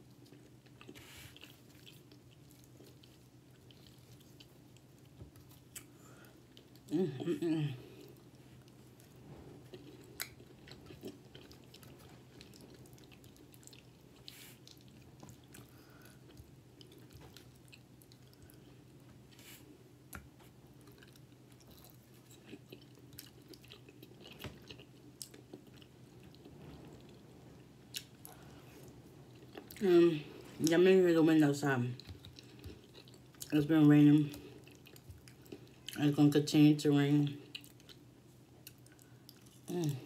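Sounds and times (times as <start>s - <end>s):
close-up chewing: 0.0s - 6.9s, 7.8s - 27.2s, 32.0s - 33.6s, 34.2s - 36.0s, 37.4s - 40.0s.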